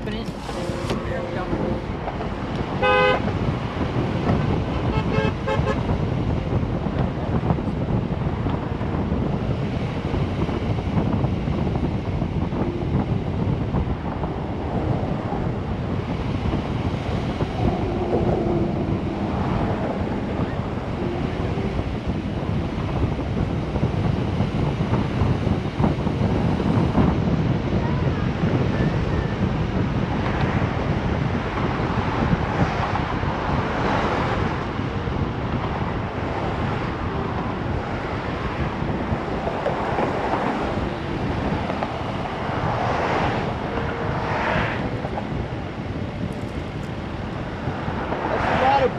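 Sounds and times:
car road noise: 0:00.0 - 0:48.9
wind buffeting microphone: 0:00.0 - 0:48.9
car horn toot: 0:02.7 - 0:03.5, 0:04.8 - 0:06.0.

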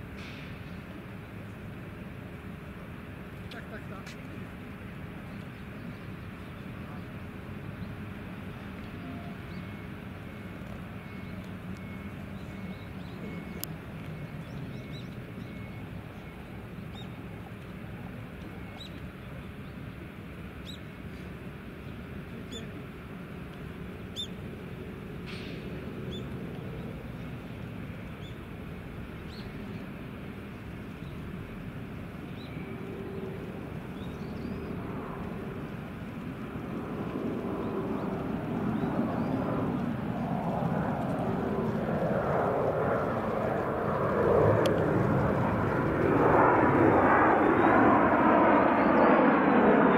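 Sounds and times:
distant jet engines drone: 0:00.0 - 0:49.9
small birds chirping: 0:29.1 - 0:31.3, 0:32.1 - 0:35.9.

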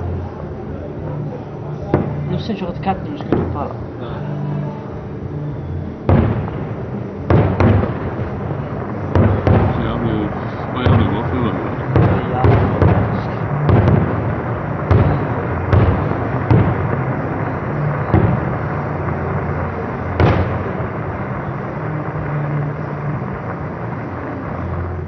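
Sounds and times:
continuous dense noise: 0:00.0 - 0:25.0
firework shells bursting: 0:06.0 - 0:25.0.

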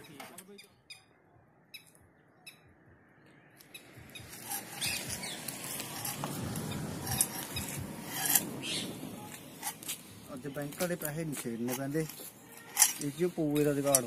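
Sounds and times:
slippers scuffing on pavement: 0:03.6 - 0:06.7, 0:09.3 - 0:14.0.

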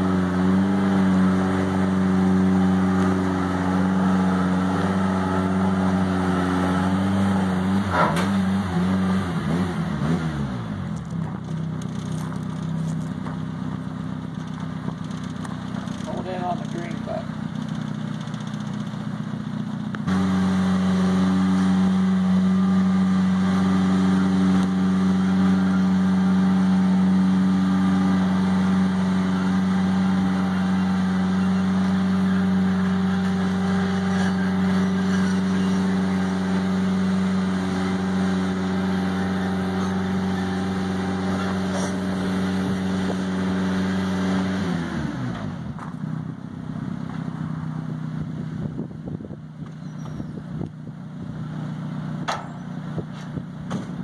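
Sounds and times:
lift engine and hydraulic pump drone: 0:00.0 - 0:54.0.

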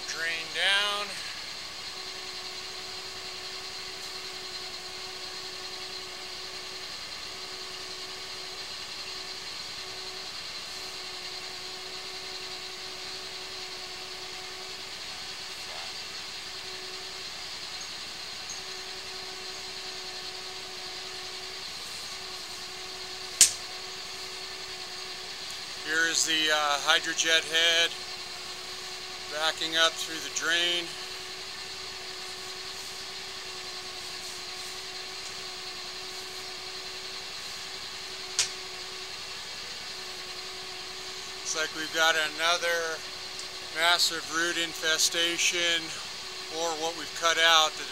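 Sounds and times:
engine droning steadily: 0:00.0 - 0:47.9
sharp click: 0:23.4 - 0:23.6.

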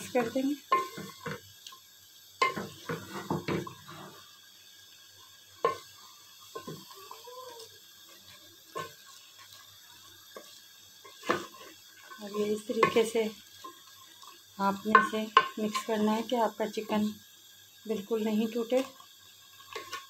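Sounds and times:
wooden spoon knocking metal pot: 0:12.6 - 0:13.2, 0:14.8 - 0:15.9.

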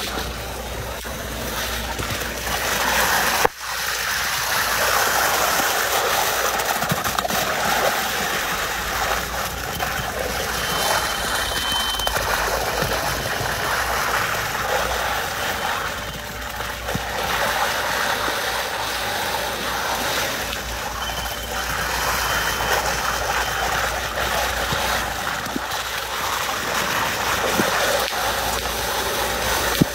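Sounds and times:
low machine hum: 0:00.0 - 0:29.9
faint high tone: 0:09.6 - 0:13.4.

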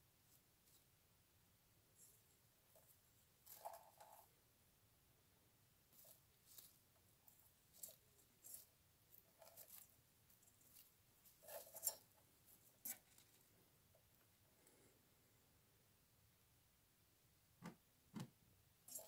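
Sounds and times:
scratching in straw bedding: 0:05.9 - 0:13.4.

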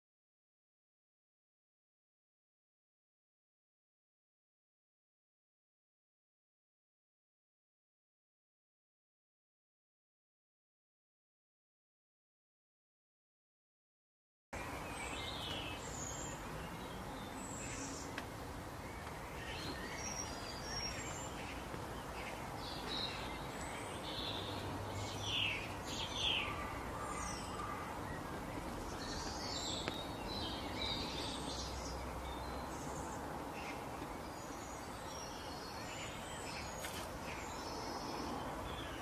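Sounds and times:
birds chirping: 0:14.6 - 0:39.0.

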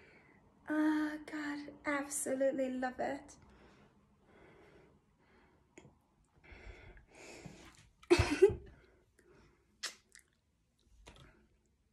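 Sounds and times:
woman breathing softly: 0:03.4 - 0:05.8, 0:06.4 - 0:07.8.

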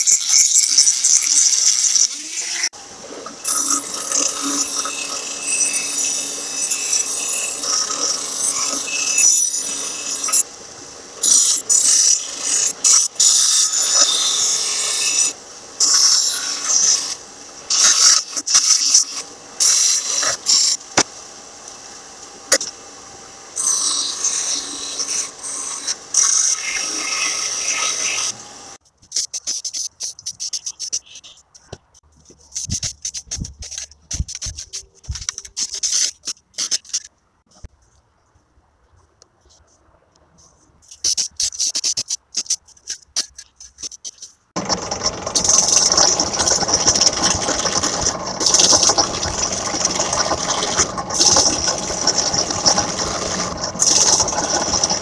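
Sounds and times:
rotary tool grinding metal: 0:00.0 - 0:02.7, 0:03.4 - 0:10.5, 0:11.2 - 0:21.1, 0:23.6 - 0:31.7, 0:32.5 - 0:37.1, 0:40.9 - 0:55.0
bench grinder on metal: 0:03.4 - 0:10.5, 0:11.2 - 0:20.8, 0:23.6 - 0:28.7, 0:44.6 - 0:55.0.

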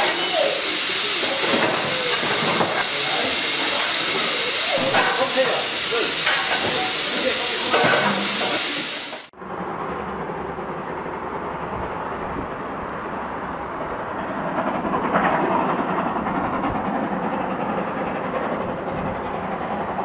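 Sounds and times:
steam train rumbling: 0:00.0 - 0:20.0.

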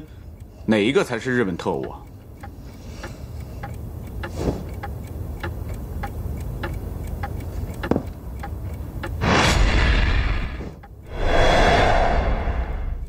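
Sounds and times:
clock ticking: 0:00.0 - 0:09.3, 0:10.7 - 0:13.0
loud rushing whoosh: 0:09.2 - 0:13.0.

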